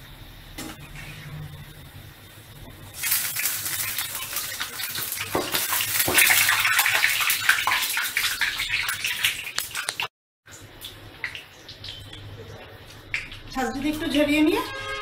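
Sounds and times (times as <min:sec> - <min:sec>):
hot oil sizzling and crackling: 0:00.0 - 0:14.3.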